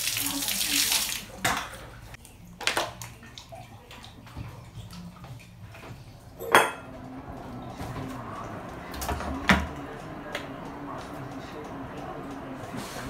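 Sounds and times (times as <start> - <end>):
electric kettle thump and click: 8.9 - 9.8.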